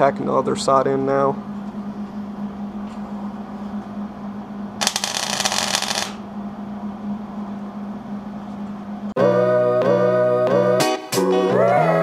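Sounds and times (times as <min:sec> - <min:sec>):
steady low hum: 0:00.0 - 0:09.3
welding arc crackling: 0:04.8 - 0:06.2.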